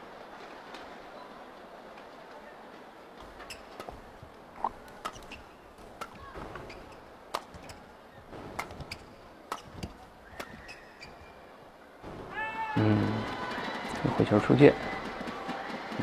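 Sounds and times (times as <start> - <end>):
racket hitting shuttlecock: 3.2 - 7.9, 8.5 - 11.4
crowd murmur: 11.4 - 16.0.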